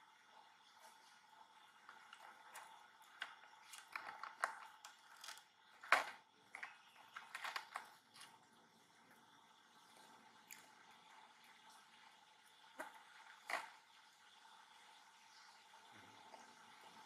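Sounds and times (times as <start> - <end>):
fruit peel crackling and clicking: 2.1 - 8.4.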